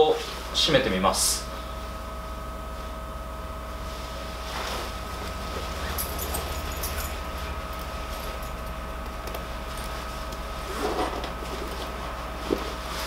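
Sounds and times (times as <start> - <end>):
steady electrical hum: 0.0 - 13.0
jacket fabric rustling: 3.8 - 13.0.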